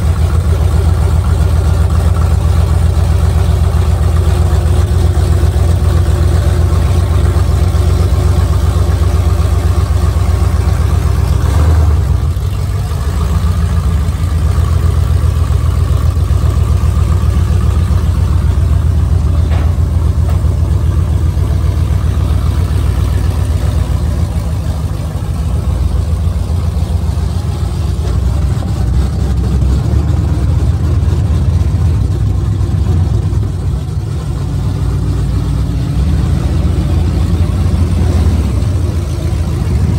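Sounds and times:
pickup truck engine idling: 0.0s - 39.9s.

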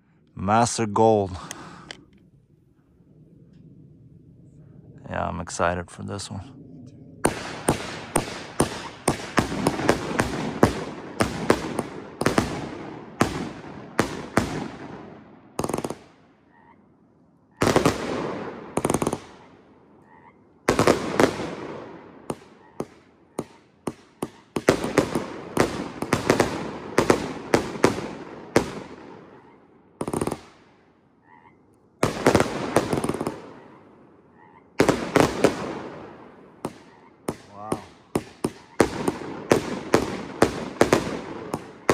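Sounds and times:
fireworks cake firing bangs: 7.2s - 16.1s, 17.6s - 19.4s, 20.7s - 29.2s, 32.0s - 33.6s, 34.8s - 41.9s.

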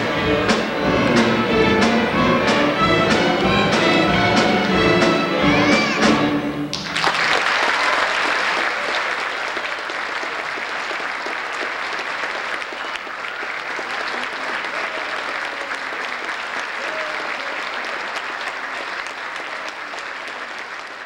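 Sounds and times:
string orchestra chord: 0.0s - 6.8s
audience applauding: 0.0s - 21.0s.

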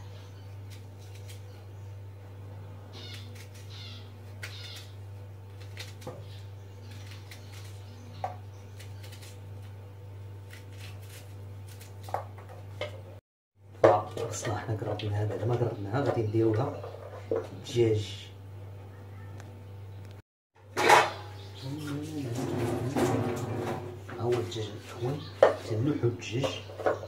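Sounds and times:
steady low hum: 0.0s - 27.0s
knife cutting onion: 0.5s - 1.6s, 3.0s - 9.8s, 10.4s - 12.7s.

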